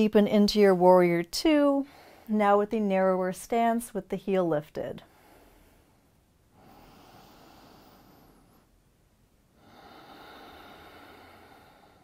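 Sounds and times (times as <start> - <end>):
woman breathing: 1.8 - 2.4, 5.0 - 12.0.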